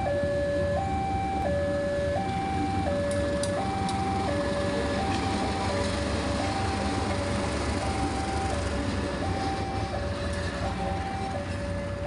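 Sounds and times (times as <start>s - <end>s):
diesel locomotive rumbling: 0.0s - 12.0s
two-tone crossing alarm: 0.0s - 12.0s.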